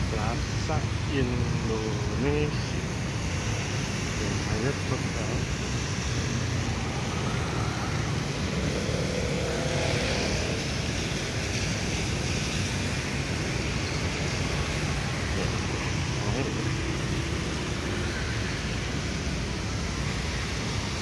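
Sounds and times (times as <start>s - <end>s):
passing vehicles droning: 0.0s - 21.0s
tyres hissing on wet asphalt: 0.0s - 21.0s.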